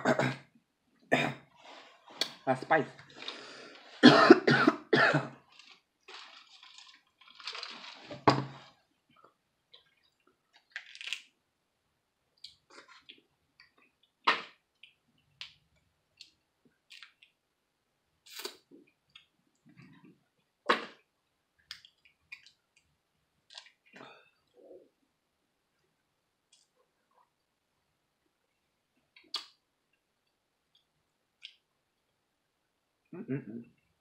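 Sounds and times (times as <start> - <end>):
crawfish shells cracking: 5.5 - 8.2, 10.5 - 11.3.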